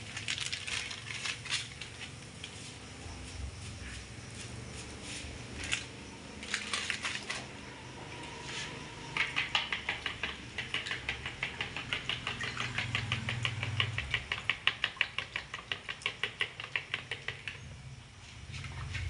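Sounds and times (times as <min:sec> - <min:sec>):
metal spoon beating eggs in bowl: 0:09.1 - 0:17.6.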